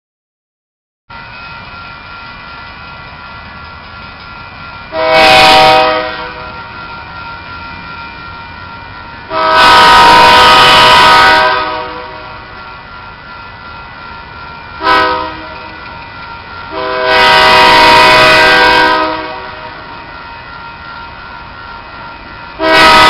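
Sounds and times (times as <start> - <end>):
locomotive air horn blasts: 4.9 - 6.6, 9.3 - 12.5, 14.8 - 15.7, 16.7 - 19.8, 22.6 - 23.0.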